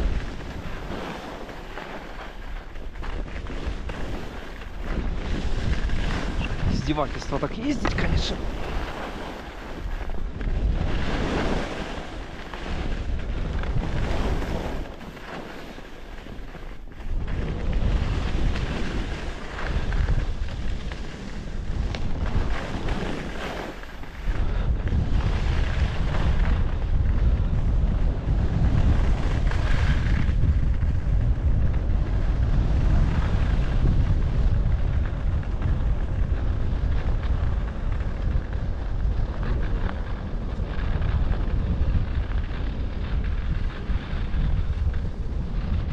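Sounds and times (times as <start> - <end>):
skis hissing and scraping on snow: 0.0 - 31.1, 31.9 - 34.6
wind rumbling on microphone: 0.0 - 45.9.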